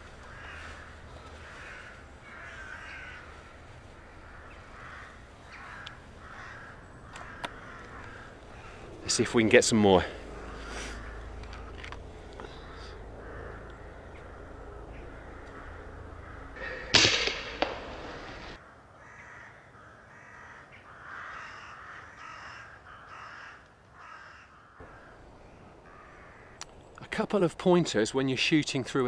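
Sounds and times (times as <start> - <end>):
crows cawing: 0.0 - 26.8
air rifle shot: 16.6 - 18.6.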